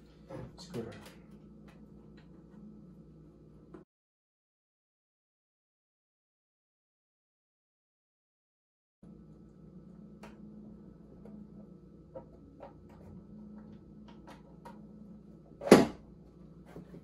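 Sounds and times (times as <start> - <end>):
faint steady hum: 0.0 - 3.8, 9.0 - 17.0.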